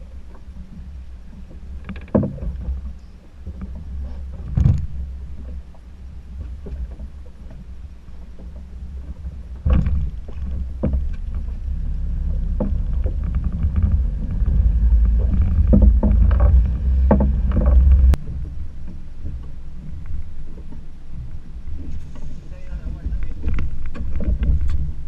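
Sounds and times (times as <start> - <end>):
irregular knocks: 9.6 - 18.2
loud low rumble: 10.0 - 18.8.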